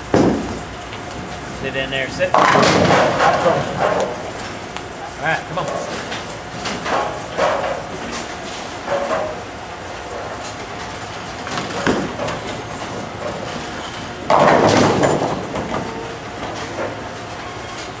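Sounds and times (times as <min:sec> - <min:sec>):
bowling pins crashing: 0:02.3 - 0:04.2, 0:11.4 - 0:16.7
bowling ball rumbling down lane: 0:14.2 - 0:16.0.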